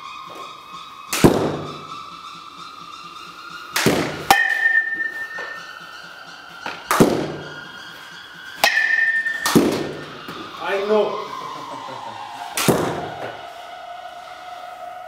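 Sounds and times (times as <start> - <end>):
ringing tone: 0.0 - 11.4
bat cracking softballs: 1.1 - 2.0, 3.7 - 5.7, 6.6 - 7.7, 8.6 - 10.5, 12.5 - 13.4.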